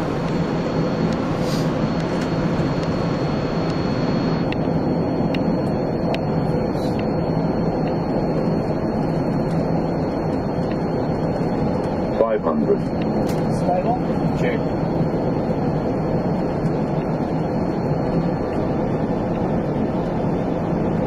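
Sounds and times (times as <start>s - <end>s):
rushing air and ventilation hum: 0.0s - 21.0s.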